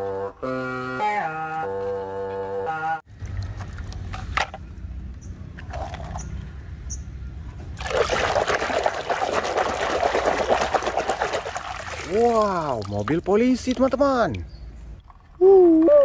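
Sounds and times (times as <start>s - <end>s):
water pouring and splashing: 3.1s - 4.4s, 7.8s - 14.4s.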